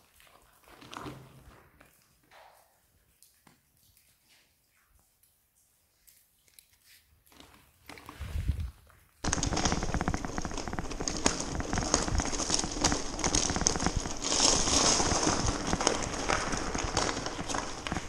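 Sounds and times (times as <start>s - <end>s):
bicycle tyres crunching on gravel: 8.1s - 18.0s
bike rattling: 8.2s - 18.0s.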